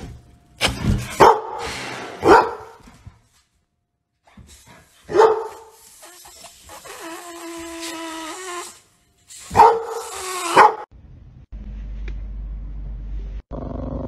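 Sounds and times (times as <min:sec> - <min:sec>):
dogs barking: 0:01.2 - 0:01.6, 0:02.2 - 0:02.8, 0:05.1 - 0:05.7, 0:09.5 - 0:10.9.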